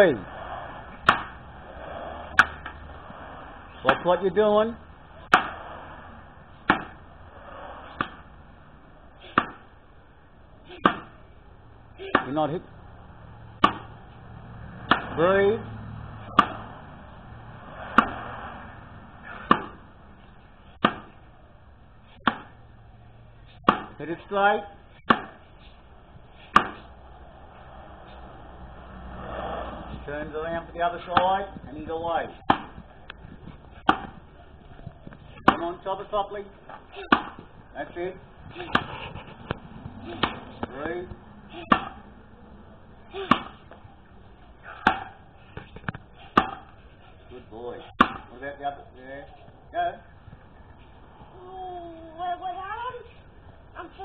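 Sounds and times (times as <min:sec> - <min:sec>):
axe chopping into a log: 0:01.0 - 0:01.3, 0:05.3 - 0:05.6, 0:06.7 - 0:07.0, 0:09.2 - 0:09.6, 0:10.8 - 0:11.2, 0:12.0 - 0:12.4, 0:13.6 - 0:13.9, 0:14.9 - 0:15.2, 0:16.3 - 0:16.7, 0:19.3 - 0:19.8, 0:20.8 - 0:21.2, 0:22.2 - 0:22.6, 0:23.6 - 0:24.0, 0:25.1 - 0:25.4, 0:26.5 - 0:26.9, 0:32.5 - 0:32.8, 0:33.9 - 0:34.2, 0:37.0 - 0:37.4, 0:38.6 - 0:39.0, 0:41.6 - 0:42.0, 0:43.1 - 0:43.7, 0:44.7 - 0:45.2, 0:46.3 - 0:46.7, 0:48.0 - 0:48.3.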